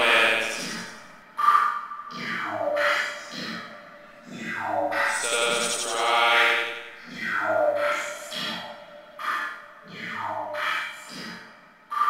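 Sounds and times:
electronic music: 0:00.0 - 0:01.1, 0:04.9 - 0:07.0.

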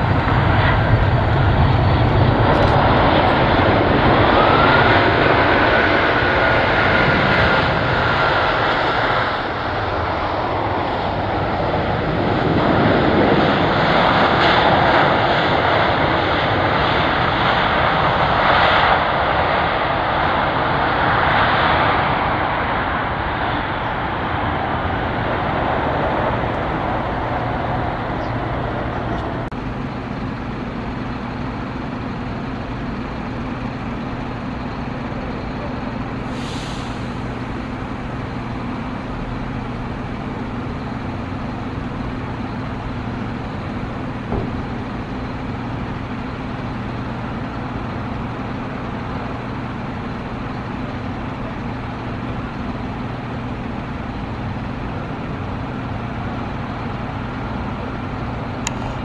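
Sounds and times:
jet engines idling: 0:00.0 - 0:59.0
short hiss: 0:36.3 - 0:37.2.

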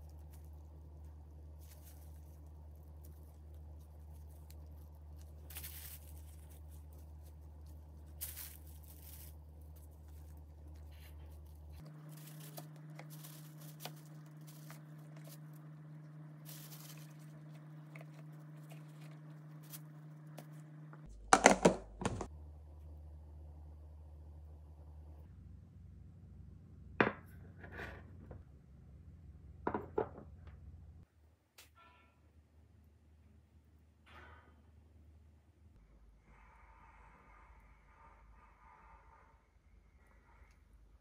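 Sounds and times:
low steady hum: 0:00.0 - 0:31.1.

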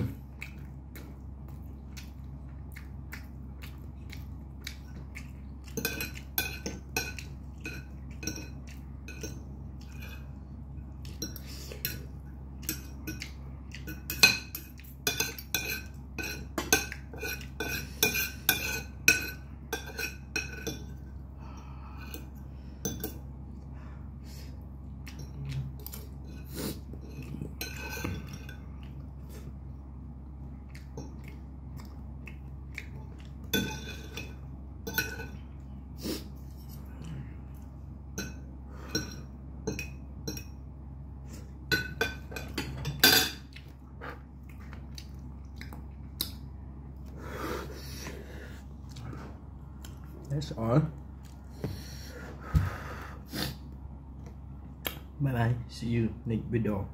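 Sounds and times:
cutlery clinking on a plate: 0:41.7 - 0:43.4.

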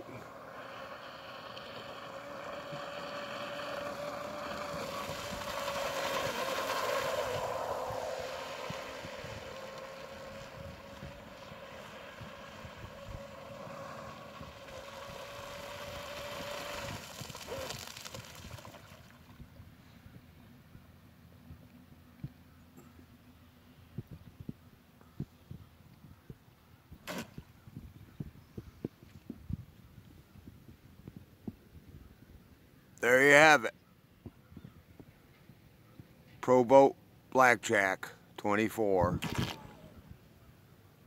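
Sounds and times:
rc boat electric motor whine: 0:00.0 - 0:18.9.

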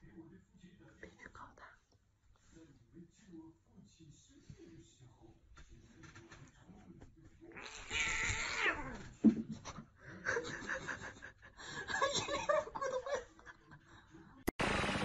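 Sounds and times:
cat meowing: 0:07.5 - 0:09.0.

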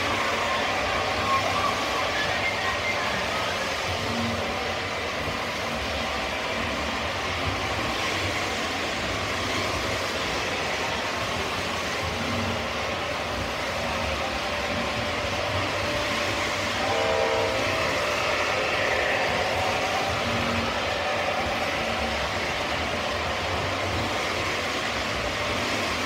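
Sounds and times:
model trains rumbling: 0:00.0 - 0:26.0
train horn tone: 0:16.7 - 0:20.6.

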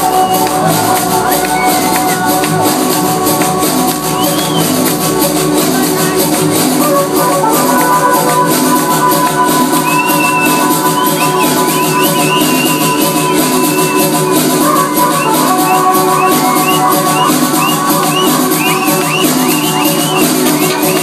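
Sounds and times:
electronic dance music: 0:00.0 - 0:21.0.

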